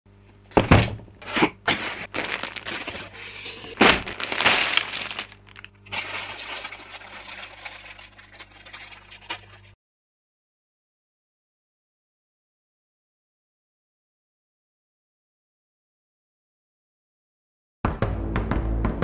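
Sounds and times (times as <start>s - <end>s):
plastic bags crinkling: 1.7s - 9.7s.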